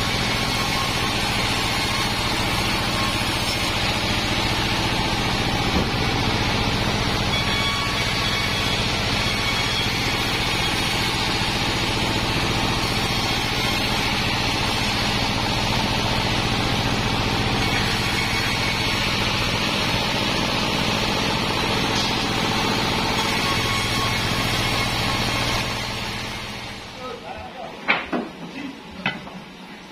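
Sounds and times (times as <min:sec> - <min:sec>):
band saw cutting timber: 0:00.0 - 0:27.3
diesel engine running: 0:01.6 - 0:23.2.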